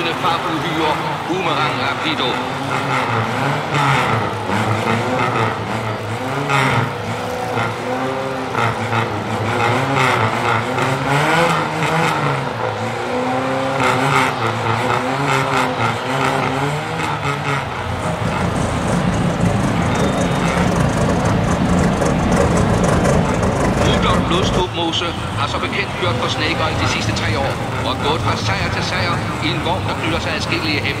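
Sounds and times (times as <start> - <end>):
racing car engine revving: 0.0 - 31.0.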